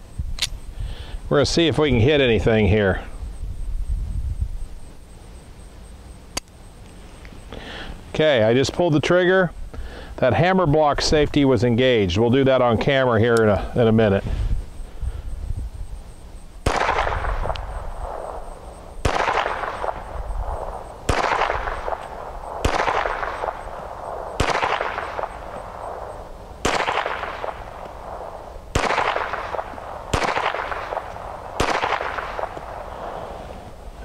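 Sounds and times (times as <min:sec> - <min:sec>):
pistol shots with echo: 0:16.6 - 0:18.4, 0:19.0 - 0:33.2.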